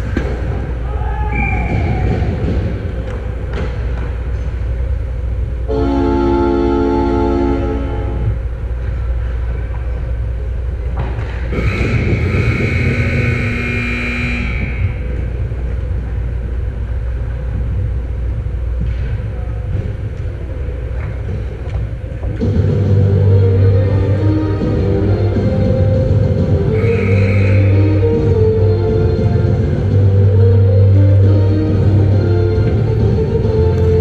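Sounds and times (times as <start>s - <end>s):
ice rink ambience rumble: 0.0s - 34.0s
horn-like held note: 11.5s - 15.2s, 26.6s - 28.4s.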